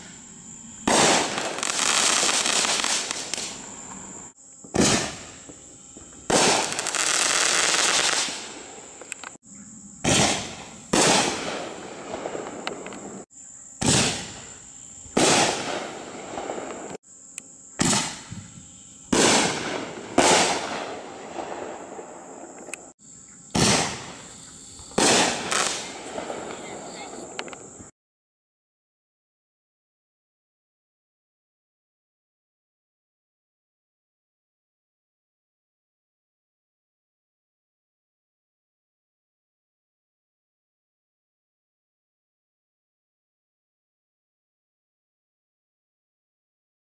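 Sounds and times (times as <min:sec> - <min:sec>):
firework shells banging: 0:23.6 - 0:27.7.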